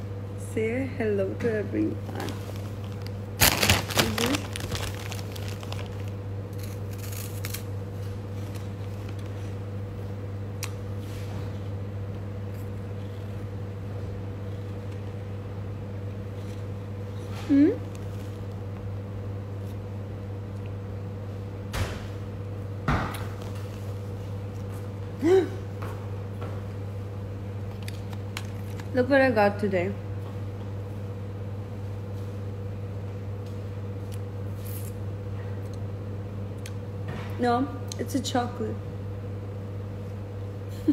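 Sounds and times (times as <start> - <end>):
low background hum: 0.0 - 40.9.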